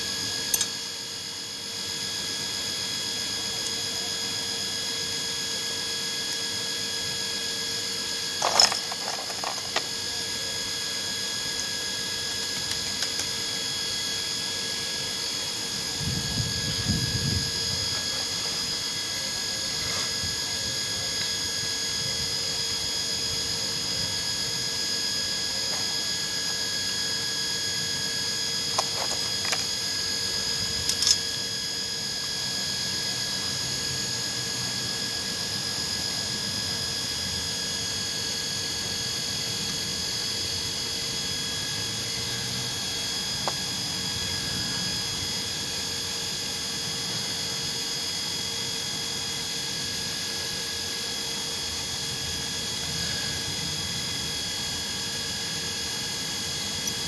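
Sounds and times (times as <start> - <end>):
machine-like whine: 0.0 - 57.0
clicks of toy car parts: 30.9 - 31.2.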